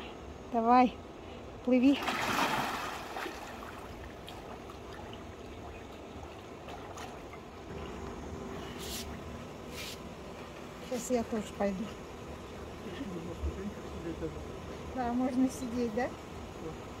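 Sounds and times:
water lapping: 0:01.8 - 0:08.7
pool water splashing: 0:01.8 - 0:10.7.

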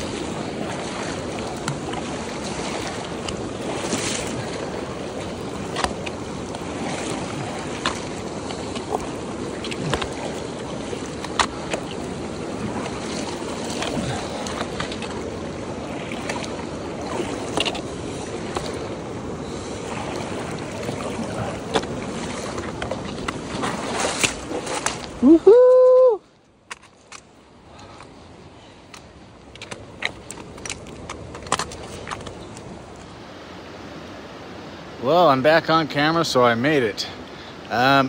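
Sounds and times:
river rushing over cobbles: 0:00.0 - 0:25.4.

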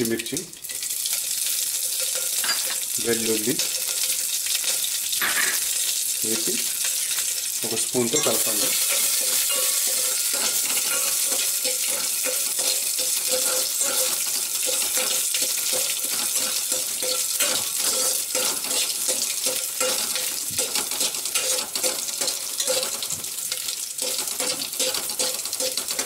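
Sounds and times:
spices sizzling in hot oil: 0:00.0 - 0:26.0
steel spoon scraping a pot: 0:08.2 - 0:23.1, 0:24.0 - 0:26.0.

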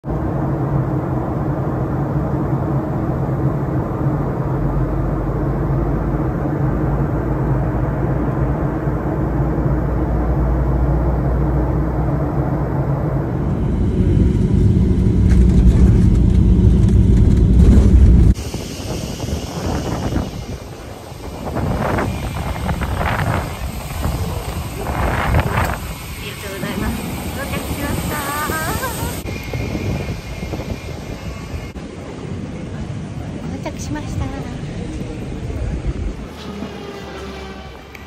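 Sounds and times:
airliner engine drone: 0:00.0 - 0:38.0
landing roll rumble: 0:14.0 - 0:18.4.

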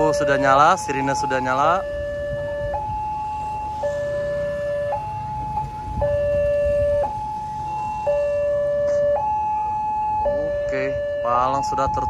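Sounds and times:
two-tone level crossing siren: 0:00.0 - 0:12.0.

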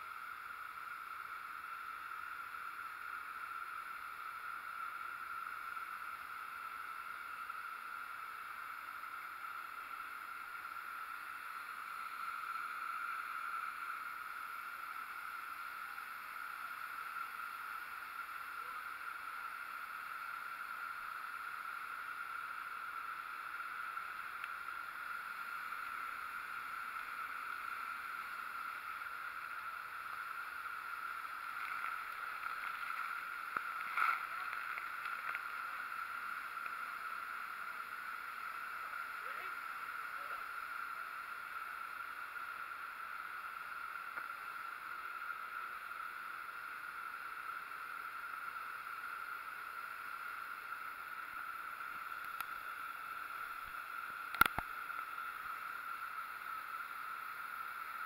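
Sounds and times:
waterfall pouring onto rock: 0:30.0 - 0:37.9.

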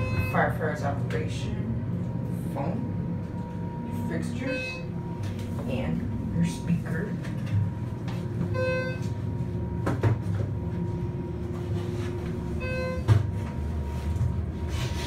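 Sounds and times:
elevator hum: 0:00.0 - 0:15.0
short electronic beeps: 0:04.4 - 0:04.9, 0:12.6 - 0:13.1.

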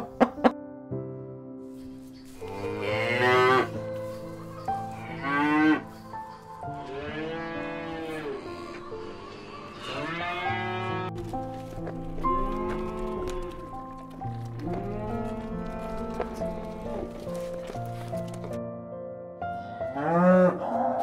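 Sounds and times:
soft background music: 0:00.0 - 0:21.0
cows mooing: 0:02.4 - 0:06.1, 0:06.8 - 0:11.2, 0:12.2 - 0:17.8, 0:20.0 - 0:21.0.

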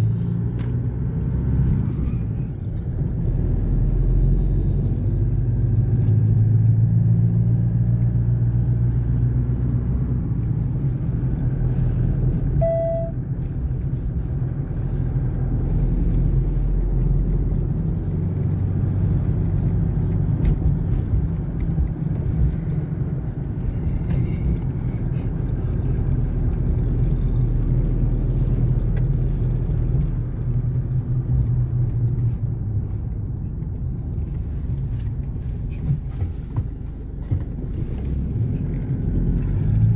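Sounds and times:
car engine and tyre hum: 0:00.0 - 0:39.9
short beep: 0:12.6 - 0:13.2.

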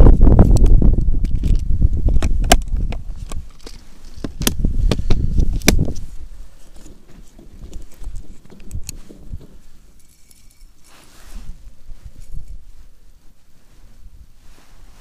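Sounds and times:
clothing rustling: 0:05.1 - 0:15.0.

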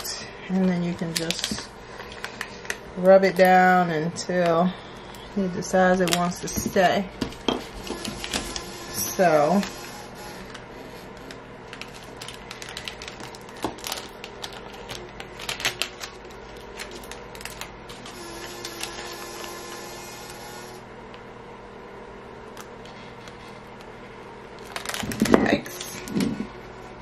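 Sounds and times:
faint steady hum: 0:00.0 - 0:27.0
hands handling vinyl cutouts: 0:10.4 - 0:19.0.

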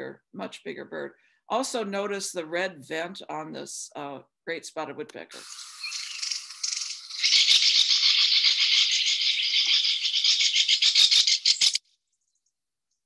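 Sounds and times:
woodpecker chattering call: 0:05.4 - 0:11.8.

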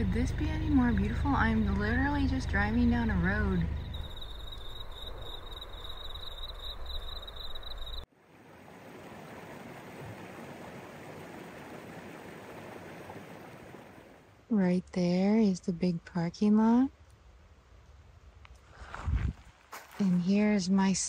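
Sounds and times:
car driving rumble: 0:00.0 - 0:08.0
insects trilling: 0:00.0 - 0:08.1
stream flowing: 0:08.1 - 0:14.4.

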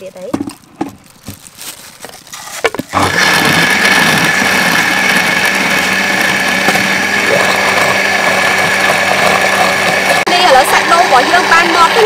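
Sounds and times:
blender motor running: 0:02.9 - 0:12.0.

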